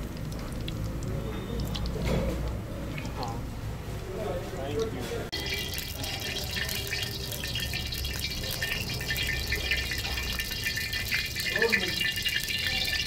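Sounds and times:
oil sizzling in a wok: 5.4s - 13.0s.

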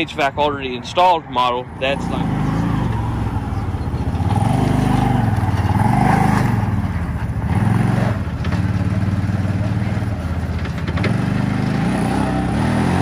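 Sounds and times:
utility vehicle engine accelerating: 1.7s - 13.0s.

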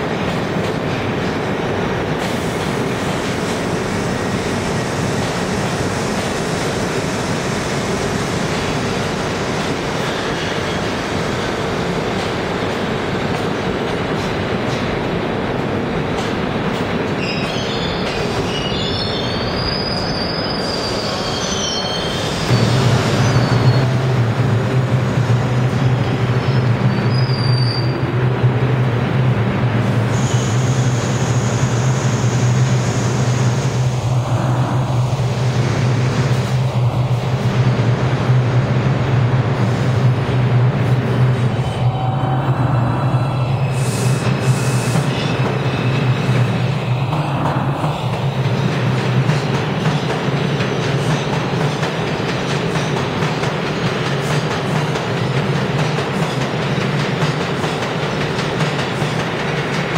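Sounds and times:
standing train low hum: 0.0s - 59.9s
train wheels rumbling on rail: 0.0s - 59.9s
high wheel squeals: 17.2s - 23.9s, 26.3s - 28.0s.

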